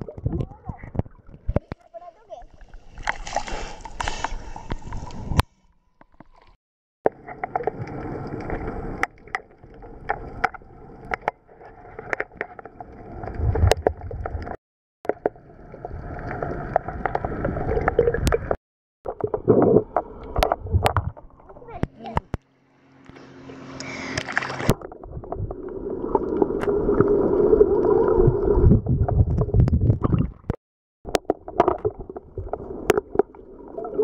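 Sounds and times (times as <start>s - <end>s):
water splashing: 0.0s - 5.4s, 23.1s - 34.0s
sharp clicks underwater: 0.0s - 11.4s, 16.7s - 25.4s, 29.1s - 33.4s.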